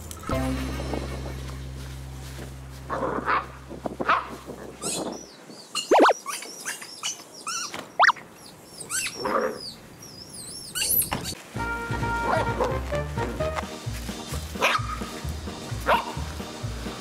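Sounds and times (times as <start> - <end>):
puppy whining and yelping: 5.7 - 11.4.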